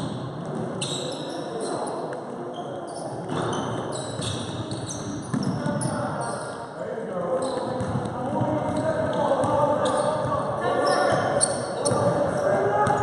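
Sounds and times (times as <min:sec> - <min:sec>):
trainers squeaking on court floor: 0:00.0 - 0:13.0
basketball bouncing: 0:04.2 - 0:05.8, 0:07.7 - 0:10.3.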